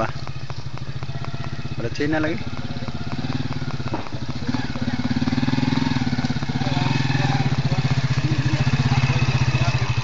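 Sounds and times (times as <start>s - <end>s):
motorcycle engine puttering: 0.0s - 10.0s.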